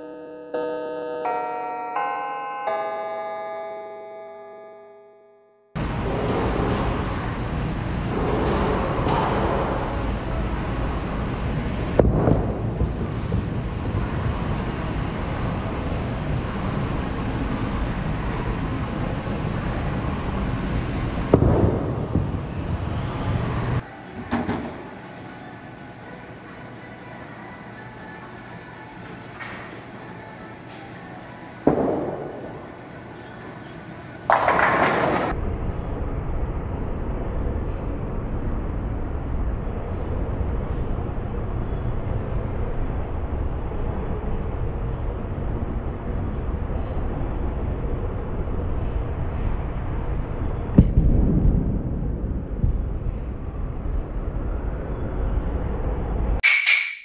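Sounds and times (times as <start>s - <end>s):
low steady rumble: 5.8s - 23.8s, 35.3s - 56.4s
bowling alley background noise: 5.8s - 57.0s
bowling ball rolling: 34.3s - 35.3s.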